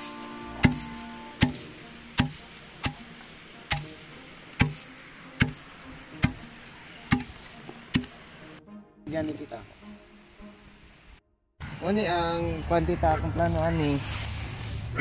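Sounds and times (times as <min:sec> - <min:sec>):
wooden pestle pounding grain: 0:00.6 - 0:08.2.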